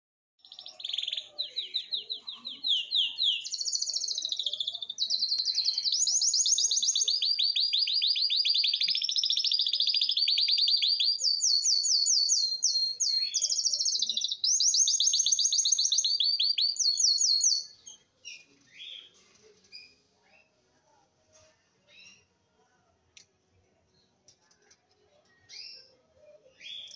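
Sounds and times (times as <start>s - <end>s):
bird singing rapid trills: 0.4s - 17.8s.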